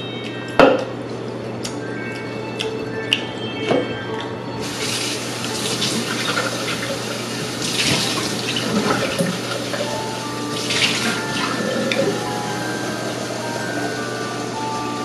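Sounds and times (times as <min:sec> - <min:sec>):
tap water running into sink: 0:04.6 - 0:12.2.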